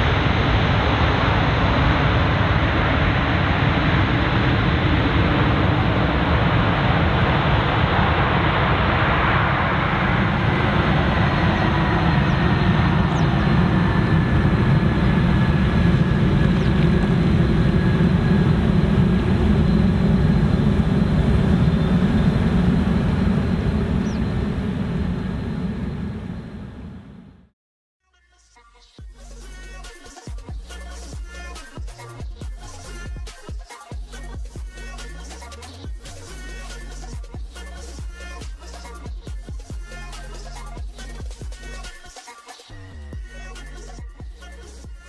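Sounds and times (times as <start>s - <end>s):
jet engines running: 0.0s - 27.6s.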